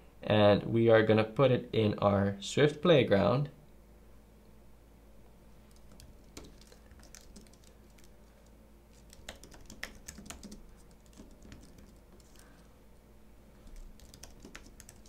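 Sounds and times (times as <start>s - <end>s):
typing on keyboard: 5.7s - 12.5s, 13.6s - 15.0s.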